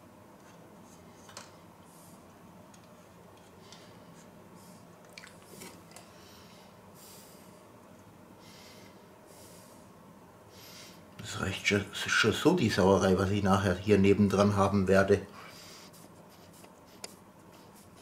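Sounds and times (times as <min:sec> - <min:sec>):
soft breathing puffs: 0:08.4 - 0:11.1, 0:15.3 - 0:18.0.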